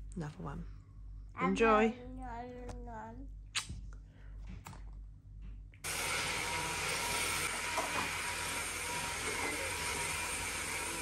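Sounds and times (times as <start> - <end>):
vacuum cleaner running: 5.8 - 11.0.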